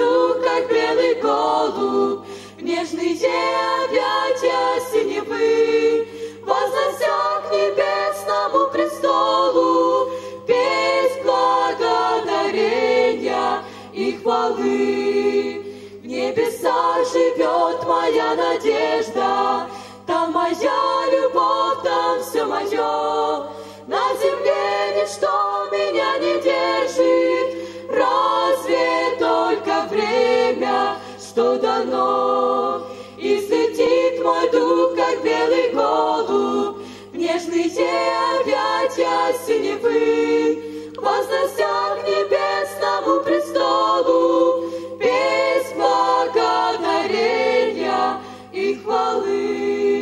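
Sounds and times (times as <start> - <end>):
women singing in harmony: 0.0 - 50.0.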